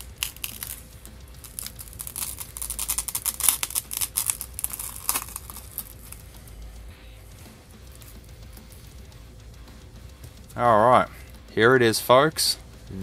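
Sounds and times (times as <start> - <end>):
glass crackling and snapping: 0.0 - 6.3.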